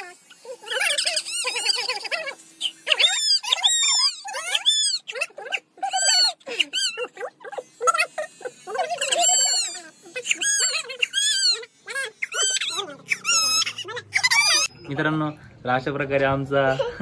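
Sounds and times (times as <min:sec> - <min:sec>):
electric hair clipper humming: 0:00.0 - 0:05.1, 0:06.2 - 0:14.7.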